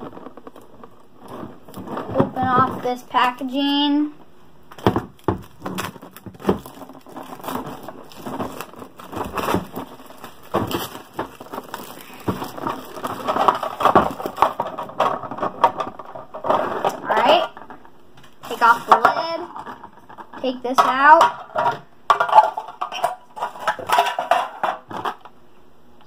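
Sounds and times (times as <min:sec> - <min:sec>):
plastic packaging crinkling: 0:00.0 - 0:03.7, 0:04.6 - 0:20.4.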